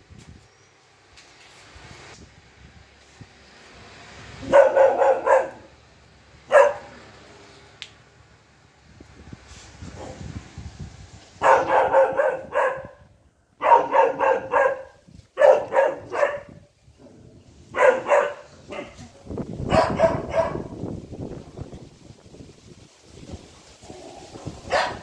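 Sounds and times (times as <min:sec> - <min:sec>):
puppy barking: 0:04.4 - 0:05.7, 0:06.5 - 0:07.0, 0:11.4 - 0:13.0, 0:13.6 - 0:16.6, 0:17.7 - 0:19.0, 0:19.7 - 0:20.8, 0:24.7 - 0:25.0.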